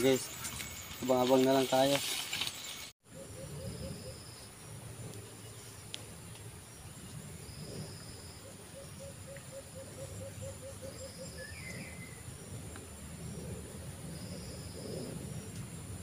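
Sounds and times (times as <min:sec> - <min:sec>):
insects buzzing: 0:00.0 - 0:02.9.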